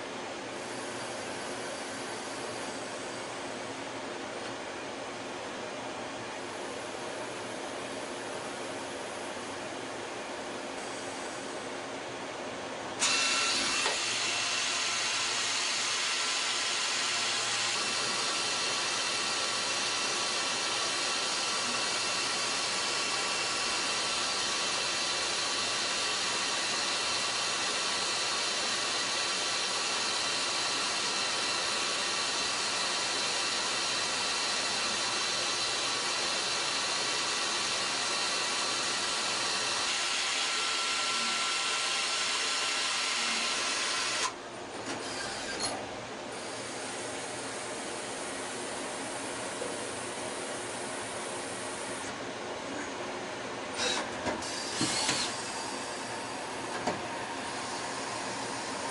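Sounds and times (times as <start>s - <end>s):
lathe cutting metal hiss: 13.0s - 44.3s.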